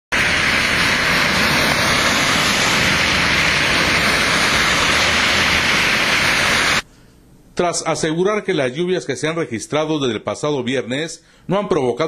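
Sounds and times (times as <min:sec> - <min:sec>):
water rushing on flooded street: 0:00.1 - 0:06.8.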